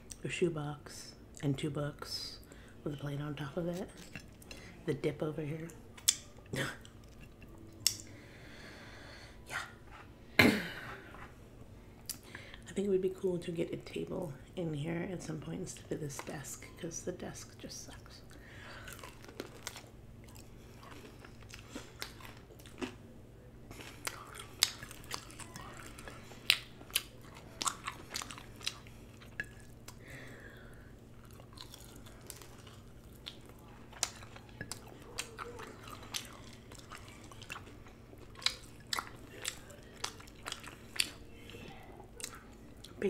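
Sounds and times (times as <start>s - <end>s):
faint steady hum: 0.0s - 43.0s
chewing and biting: 5.9s - 8.1s, 18.7s - 23.0s, 23.7s - 30.0s, 31.2s - 41.3s.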